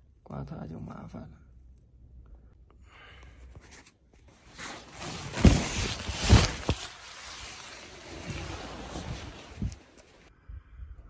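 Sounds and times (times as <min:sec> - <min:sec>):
tent fabric rustling: 0:03.7 - 0:10.3.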